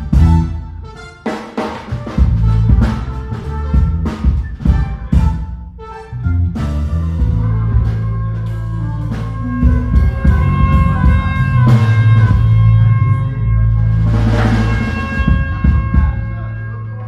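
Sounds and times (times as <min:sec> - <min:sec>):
sustained low notes: 0:00.0 - 0:01.1, 0:01.9 - 0:17.0
drum kit: 0:00.0 - 0:17.0
cymbal wash: 0:08.3 - 0:17.0.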